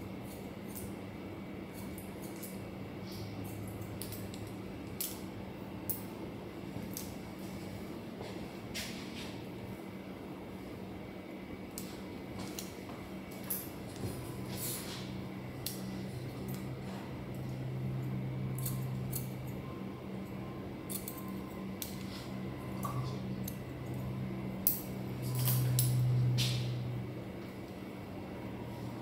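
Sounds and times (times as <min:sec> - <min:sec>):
scissors snipping hair: 0:00.2 - 0:01.0, 0:01.7 - 0:05.2, 0:17.4 - 0:19.6, 0:20.9 - 0:26.6.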